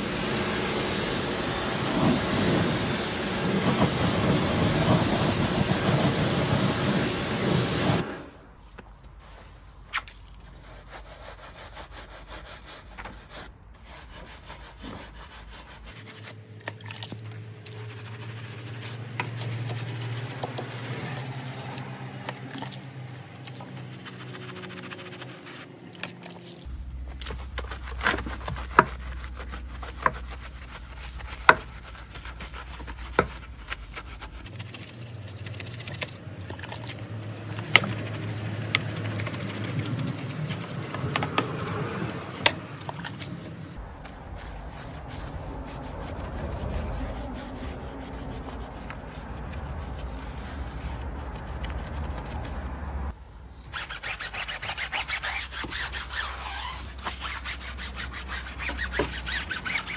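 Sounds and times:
brush scrubbing wet wheel: 0.0 - 59.9.

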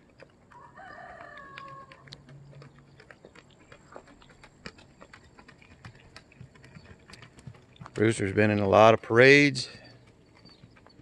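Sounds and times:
hoofbeats on dirt: 0.0 - 11.0.

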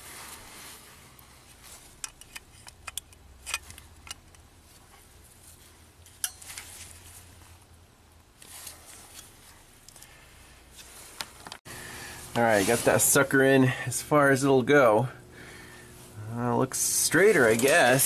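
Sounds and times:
locking pliers clicking on metal: 2.0 - 4.4.

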